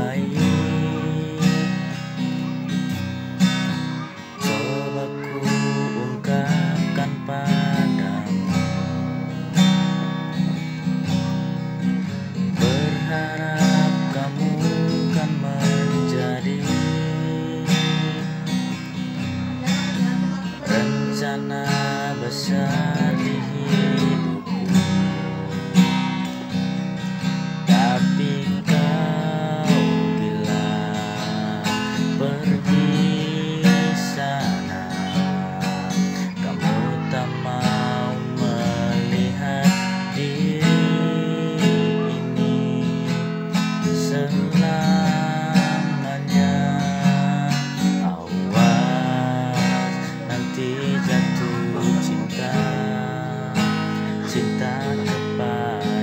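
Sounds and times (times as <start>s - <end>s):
acoustic guitar strumming: 0.0s - 56.0s.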